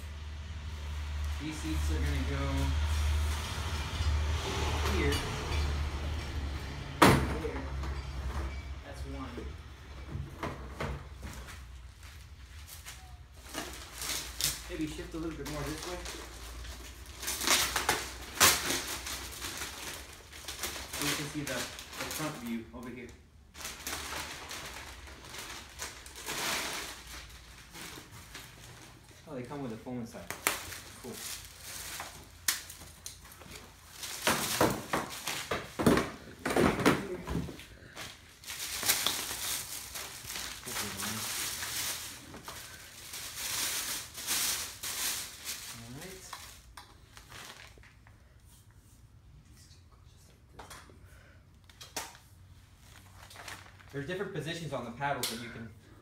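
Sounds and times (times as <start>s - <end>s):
plastic packaging crinkling: 11.9s - 35.9s, 37.8s - 48.1s, 52.8s - 54.2s.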